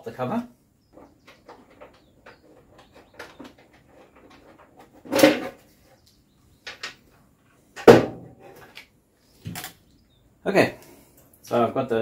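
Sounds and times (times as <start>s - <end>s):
loud knock of plastic cover: 7.8s - 8.2s.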